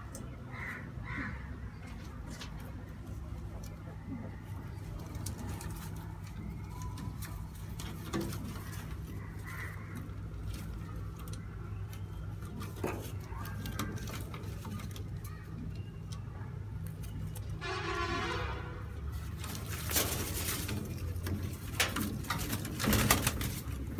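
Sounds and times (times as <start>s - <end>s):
pigeons cooing: 3.5s - 16.7s
low hum: 17.5s - 19.8s.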